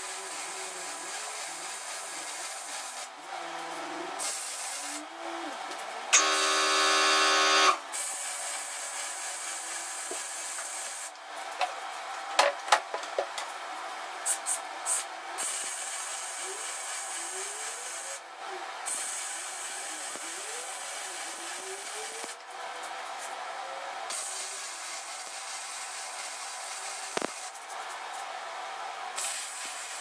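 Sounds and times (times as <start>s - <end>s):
arc welding crackling: 4.2s - 12.3s, 18.9s - 23.3s, 24.1s - 28.4s
welding arc buzzing: 6.1s - 9.5s.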